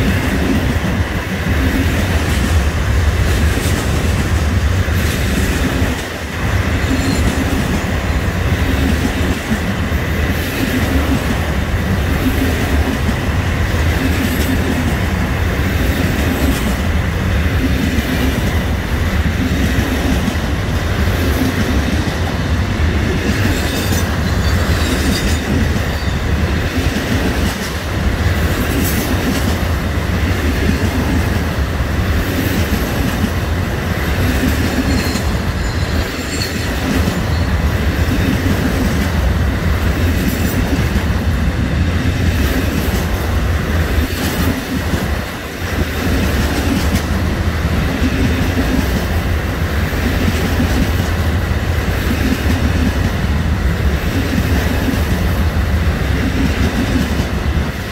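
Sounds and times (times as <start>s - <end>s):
clickety-clack of wheels: 0.0s - 57.9s
train wheels on rails: 0.0s - 57.9s.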